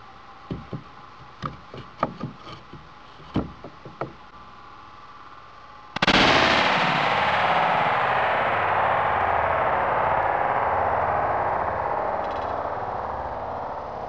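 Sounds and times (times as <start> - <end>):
knocks and taps on panel: 0.5 - 4.2.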